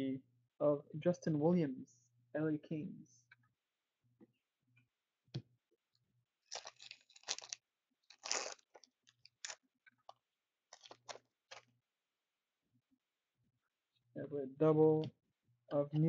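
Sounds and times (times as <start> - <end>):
wrapper crinkling and tearing: 6.5 - 9.6, 10.7 - 11.6.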